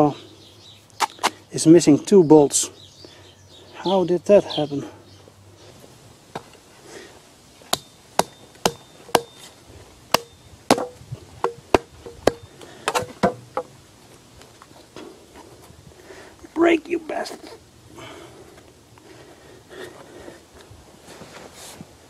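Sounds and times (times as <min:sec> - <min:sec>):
axe chopping wood: 0:07.7 - 0:09.4, 0:10.1 - 0:13.7.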